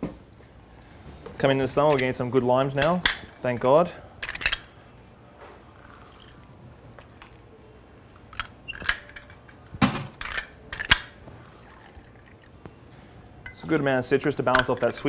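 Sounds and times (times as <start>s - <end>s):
clicks and knocks of glassware: 14.5s - 15.0s.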